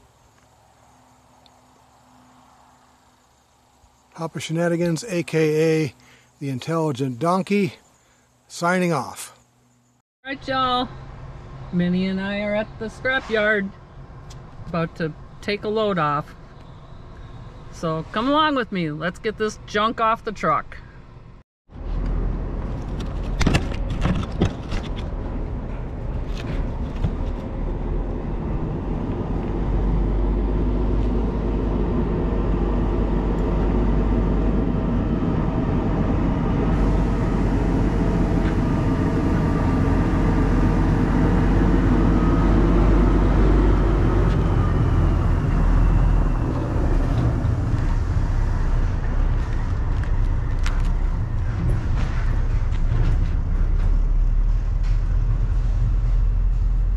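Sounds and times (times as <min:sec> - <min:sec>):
vehicle engine running: 0:20.9 - 0:56.9.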